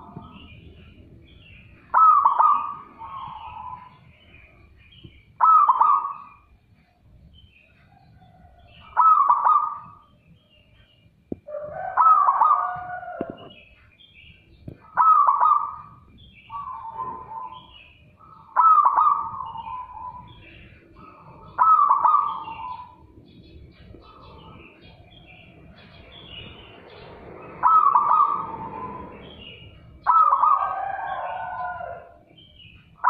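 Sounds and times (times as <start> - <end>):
dove cooing: 1.8 - 4.0, 5.4 - 6.5, 8.4 - 10.0, 11.5 - 13.6, 14.8 - 23.2, 27.6 - 32.2.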